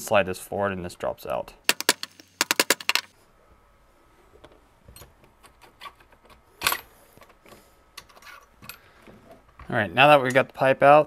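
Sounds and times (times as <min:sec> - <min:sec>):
metal parts clicking and rattling: 0:01.7 - 0:03.1
metal parts knocking: 0:01.7 - 0:03.1.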